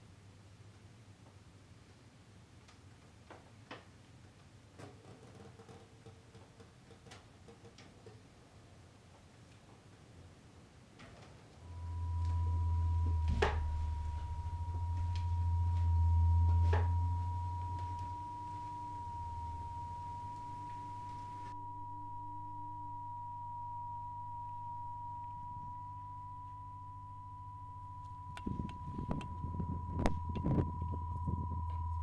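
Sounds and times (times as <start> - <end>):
low electric hum: 10.9 - 32.0
high pure guitar drone tone: 11.6 - 32.0.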